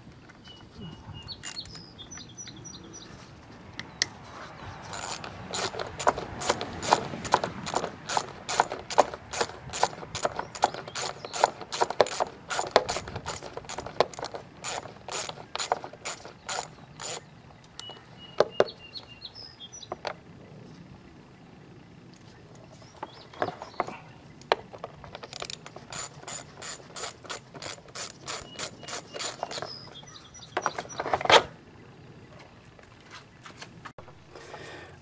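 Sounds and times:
socket ratchet clicking: 0:01.4 - 0:01.8, 0:04.9 - 0:17.9, 0:25.2 - 0:29.9.

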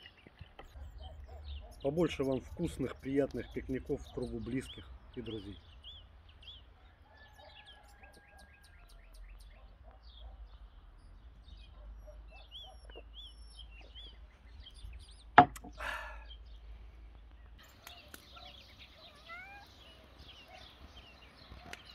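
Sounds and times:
songbirds chirping: 0:00.0 - 0:21.9
sharp knock: 0:15.4 - 0:15.8.

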